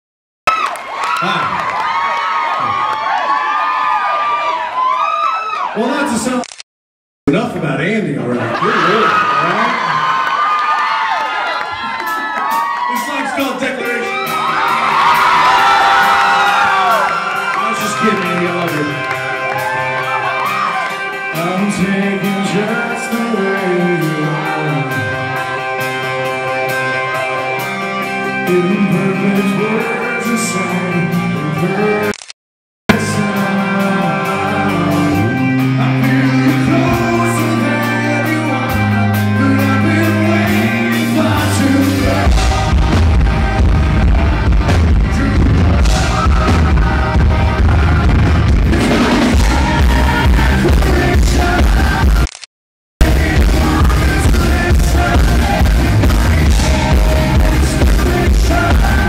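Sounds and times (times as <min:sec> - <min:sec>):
man singing: 0:17.6 - 0:19.4, 0:21.2 - 0:25.4, 0:28.3 - 0:32.1, 0:32.9 - 0:43.6, 0:44.9 - 0:52.3, 0:53.0 - 0:59.0
heavy bass and drums: 0:32.9 - 0:52.3, 0:53.0 - 0:59.0.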